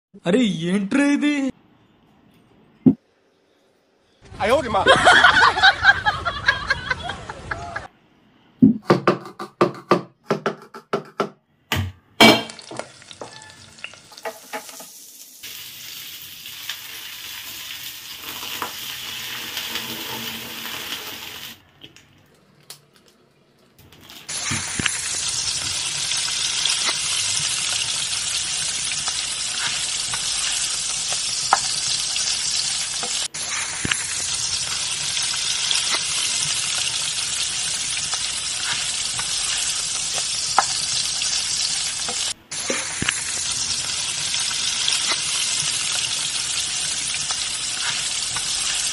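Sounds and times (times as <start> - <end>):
onions sizzling in a pan: 12.4 - 21.6, 24.1 - 48.9
water boiling hard in a pan: 12.5 - 21.6, 23.9 - 48.9.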